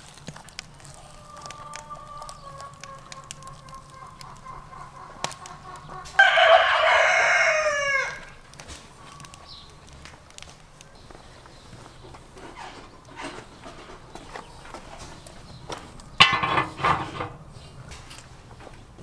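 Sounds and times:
rooster crowing: 0:01.0 - 0:08.4.

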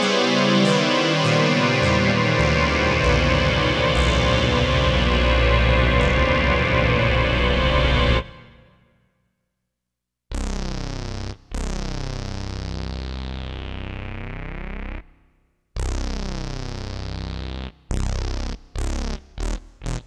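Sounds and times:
synthesizer notes: 0:00.0 - 0:08.8.

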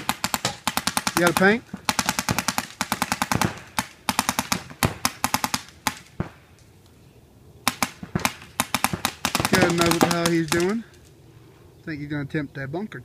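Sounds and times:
paintball markers firing: 0:00.0 - 0:06.4, 0:07.7 - 0:11.0.

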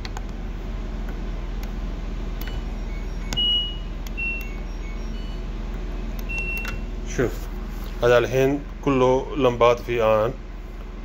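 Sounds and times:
steady low hum: 0:00.0 - 0:11.0
electronic beeps: 0:02.4 - 0:06.8.

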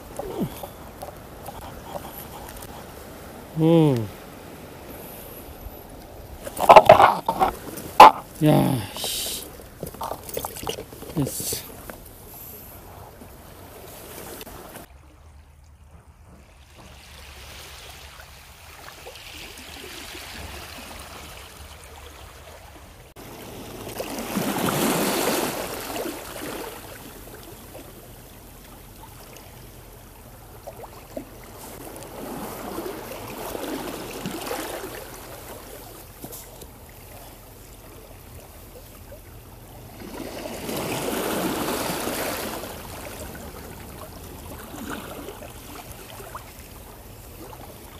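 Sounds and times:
water lapping against stone wall: 0:00.0 - 0:47.9.

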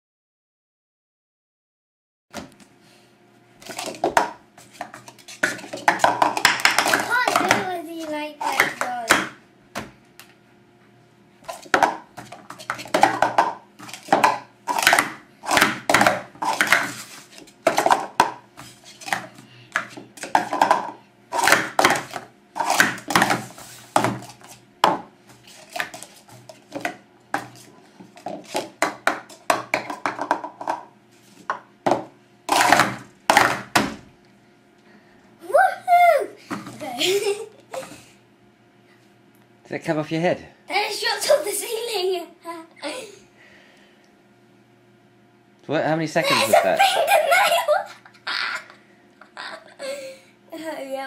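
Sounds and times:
plastic cups clattering: 0:03.6 - 0:09.2, 0:11.5 - 0:30.9, 0:31.9 - 0:33.7.

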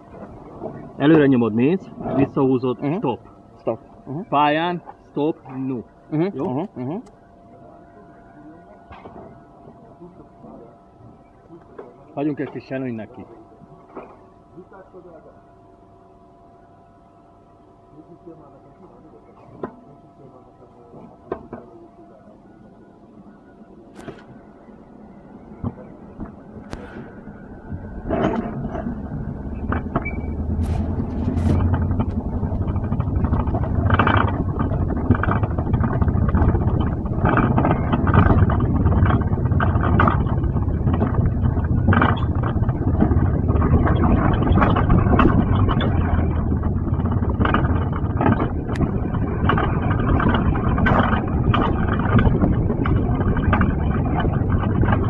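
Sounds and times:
coaster sled wheels rumbling on rail: 0:00.0 - 0:06.4, 0:18.2 - 0:55.0.

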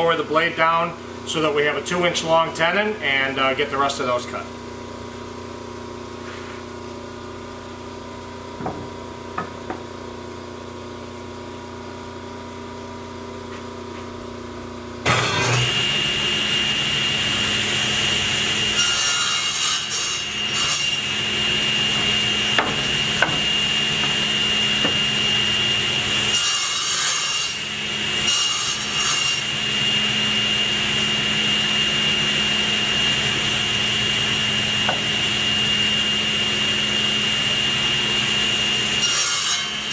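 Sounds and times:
saw blade cutting wood: 0:15.0 - 0:30.5, 0:38.9 - 0:39.9
table saw whining: 0:15.0 - 0:39.9.

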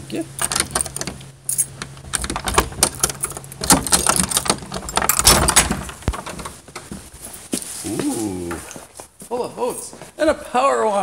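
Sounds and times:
keys jangling: 0:00.4 - 0:06.9
door lock clicks and rattles: 0:00.4 - 0:07.0.

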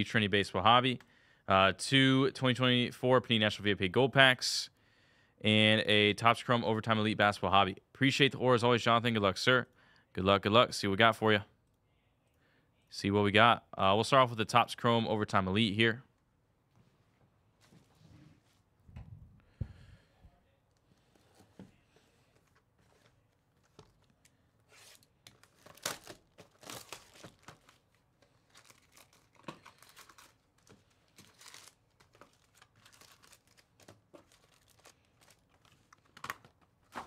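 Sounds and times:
wrappers crinkling and tearing: 0:22.4 - 0:37.0.

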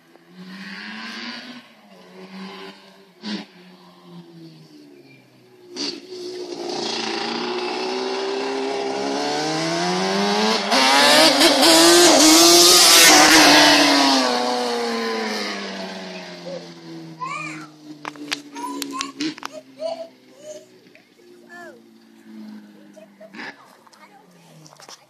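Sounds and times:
atv engine accelerating past: 0:00.0 - 0:19.9.

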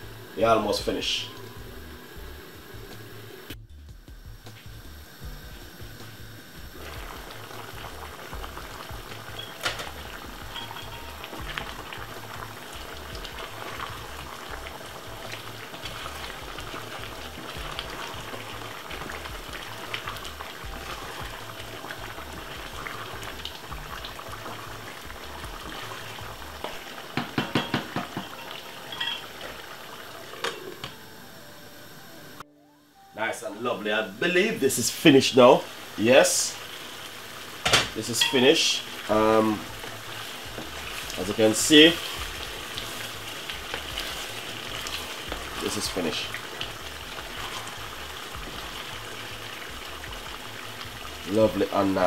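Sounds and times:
background music with low bass: 0:00.0 - 0:26.8, 0:38.9 - 0:52.0
stew bubbling and sizzling: 0:00.0 - 0:52.0
wooden spoon stirring: 0:06.8 - 0:28.3, 0:38.2 - 0:50.3.

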